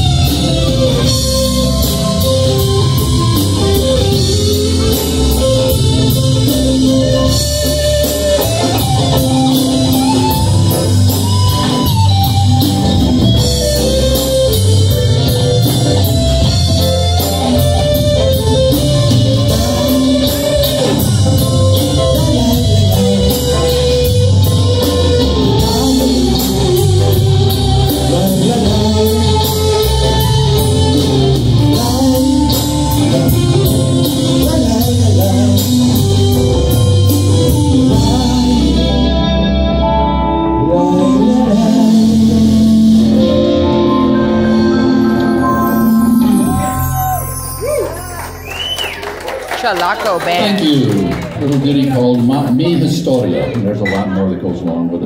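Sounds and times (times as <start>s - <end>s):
congas: 0.0s - 38.6s, 44.7s - 55.0s
live rock band playing: 0.0s - 55.0s
man singing: 17.2s - 48.0s.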